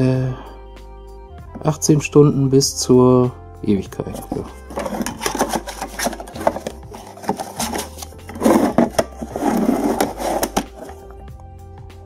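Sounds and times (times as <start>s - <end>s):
plastic scraping against cardboard: 4.0s - 11.1s
plastic box clicking and knocking: 4.4s - 9.3s.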